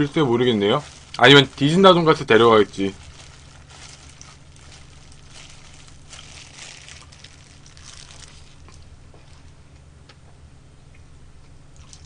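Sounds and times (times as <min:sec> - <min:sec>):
plastic glove crinkling: 0:00.0 - 0:09.6
low steady hum: 0:00.0 - 0:12.0
biting and chewing: 0:02.9 - 0:09.6.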